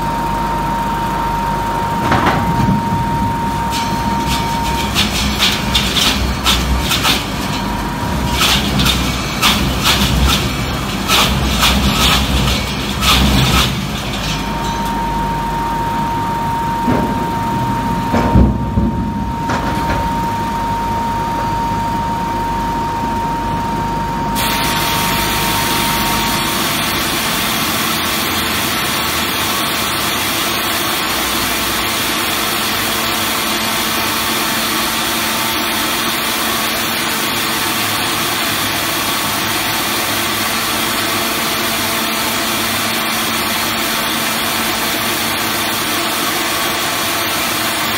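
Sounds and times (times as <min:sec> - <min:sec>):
hissy machine noise: 0:00.0 - 0:22.2, 0:24.2 - 0:47.9
machinery motor hum with whine: 0:00.0 - 0:47.9
machinery knocks: 0:02.0 - 0:15.0, 0:16.8 - 0:20.3.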